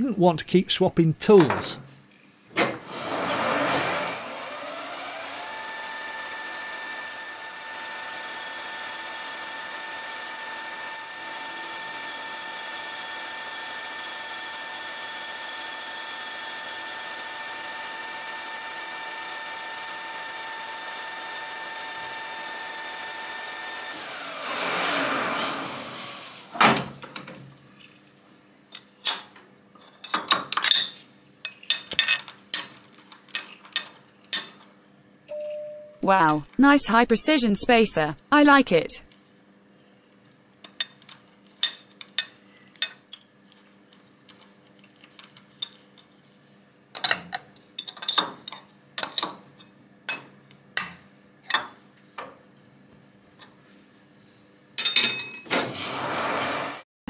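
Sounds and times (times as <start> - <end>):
lathe spindle whine: 2.8 - 26.5.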